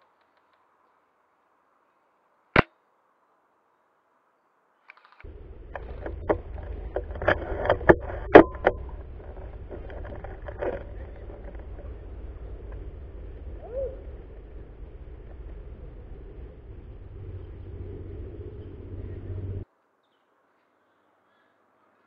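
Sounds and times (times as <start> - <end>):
clicks and knocks of handled gear: 4.8 - 13.0
steady low rumble: 5.3 - 19.7.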